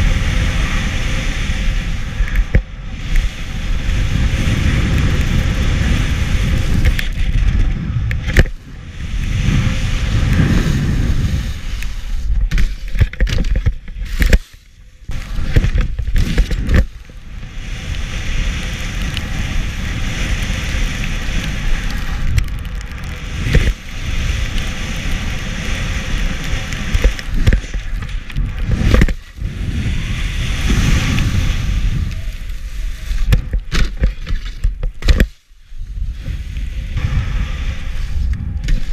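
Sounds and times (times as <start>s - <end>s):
skis sliding over snow: 0.0s - 38.9s
wind on microphone: 0.0s - 38.9s.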